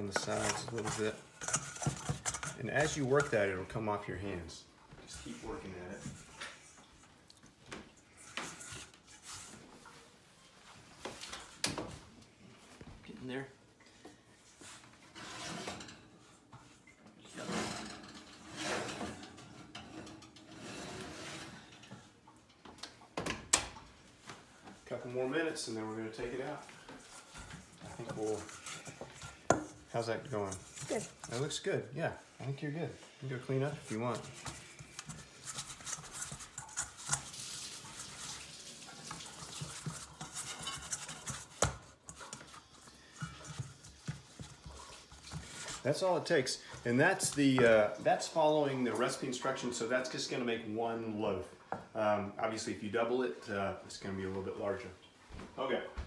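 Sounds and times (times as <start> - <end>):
metal pans scraping on wire rack: 0.0 - 3.7, 15.1 - 16.4, 17.2 - 22.1, 33.5 - 46.0
hand squishing dough in bowl: 24.3 - 48.8.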